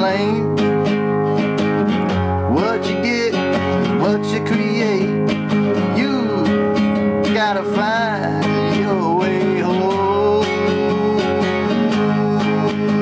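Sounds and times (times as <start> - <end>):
strummed acoustic guitar: 0.0 - 13.0
gliding lead melody: 4.9 - 13.0.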